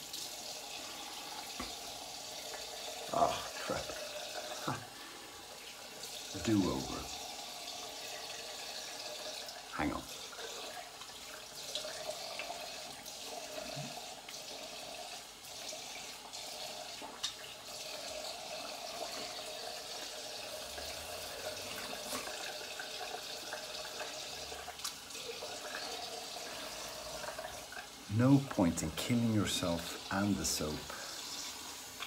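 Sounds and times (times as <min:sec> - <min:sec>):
tap running into sink: 0:01.5 - 0:01.8.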